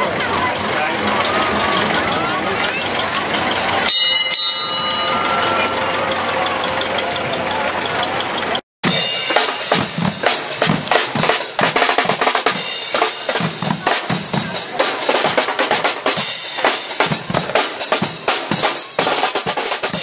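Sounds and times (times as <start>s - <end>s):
marching drums and cymbals: 8.2s - 20.0s.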